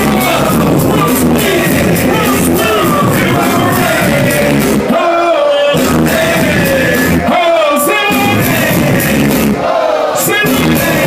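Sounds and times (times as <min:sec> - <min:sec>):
loud hip-hop music over pa: 0:00.0 - 0:11.0
vocals: 0:00.0 - 0:11.0.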